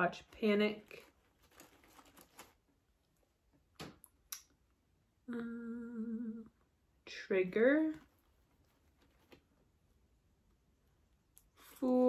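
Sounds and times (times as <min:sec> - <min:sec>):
faint rustling: 0:00.2 - 0:03.3, 0:07.6 - 0:10.0
woman humming: 0:05.2 - 0:06.7.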